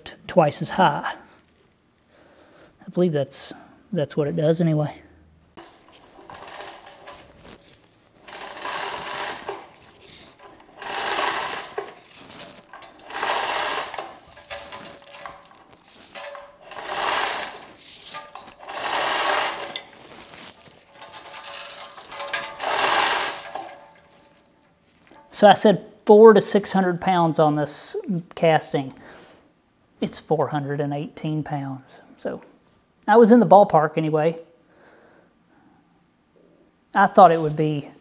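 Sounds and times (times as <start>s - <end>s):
hoist chain rattling: 5.6s - 7.6s, 8.2s - 25.3s.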